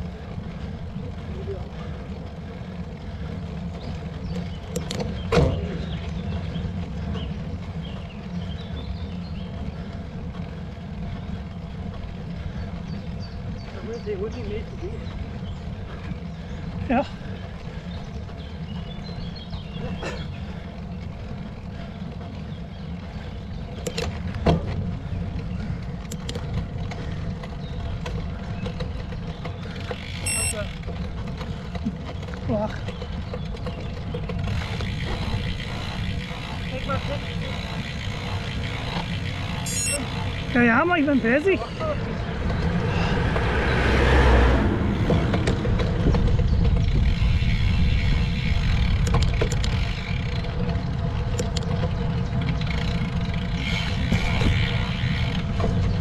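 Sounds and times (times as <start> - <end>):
bicycle clicks and knocks: 0.0 - 13.6, 15.1 - 41.5, 44.9 - 56.0
wind and road noise while cycling: 0.0 - 56.0
sharp ringing clicks: 30.2 - 30.7, 39.6 - 40.1
wind noise on microphone: 43.2 - 56.0.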